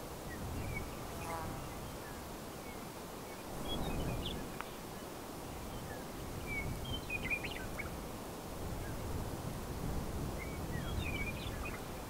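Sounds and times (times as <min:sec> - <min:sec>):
wind rumbling in gusts: 0:00.0 - 0:12.0
small birds chirping: 0:00.3 - 0:08.0, 0:10.4 - 0:12.0.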